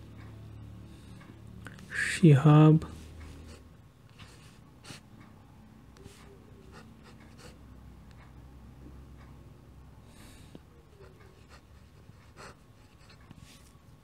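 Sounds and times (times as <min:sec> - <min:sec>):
pen scratching on paper: 0:06.0 - 0:07.6, 0:11.0 - 0:13.7.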